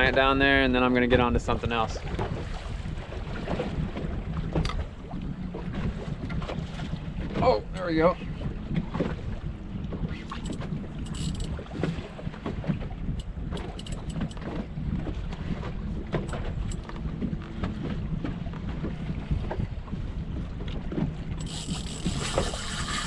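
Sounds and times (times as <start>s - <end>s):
wind buffeting microphone: 0.0s - 23.0s
outboard motor idling: 7.2s - 23.0s
small clicks and knocks: 10.3s - 11.5s, 13.2s - 14.5s.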